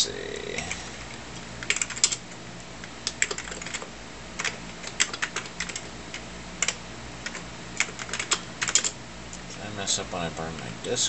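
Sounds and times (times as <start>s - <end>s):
low steady hum: 0.0s - 11.0s
keyboard typing: 1.6s - 2.2s, 3.0s - 9.0s.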